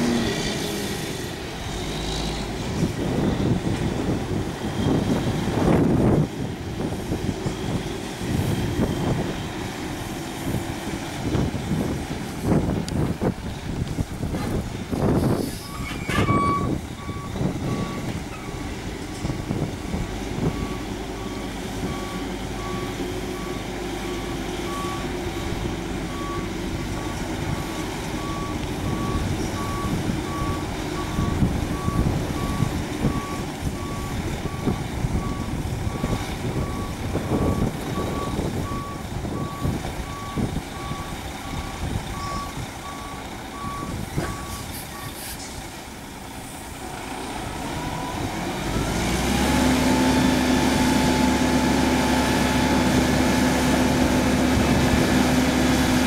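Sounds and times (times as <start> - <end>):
truck engine rumble: 0.0 - 56.0
reversing alarm beeps: 15.6 - 18.6, 20.5 - 45.2.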